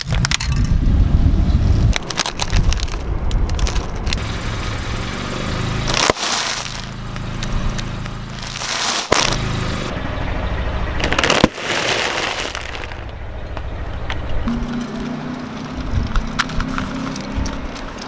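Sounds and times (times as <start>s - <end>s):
car engine running low: 0.7s - 18.0s
chip bag crinkling and crunching: 2.0s - 3.9s, 5.9s - 7.0s, 8.4s - 9.4s, 11.0s - 13.0s.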